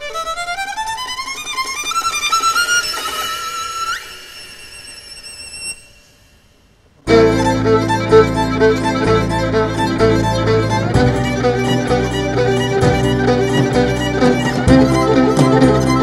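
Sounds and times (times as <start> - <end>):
low keyboard bass line: 7.1 - 16.0
repeating piano riff: 7.1 - 16.0
sustained keyboard chord: 7.1 - 16.0
violin holding wavering note: 7.1 - 16.0
drum kit: 11.0 - 16.0.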